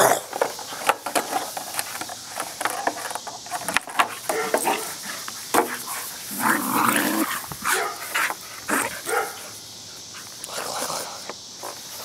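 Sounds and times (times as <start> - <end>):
dog barking: 4.3 - 4.9, 7.6 - 8.1, 9.0 - 9.4.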